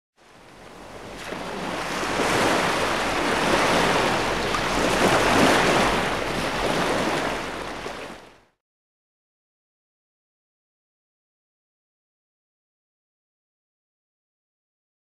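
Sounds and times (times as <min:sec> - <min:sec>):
rushing surf-like noise: 0:01.0 - 0:08.2.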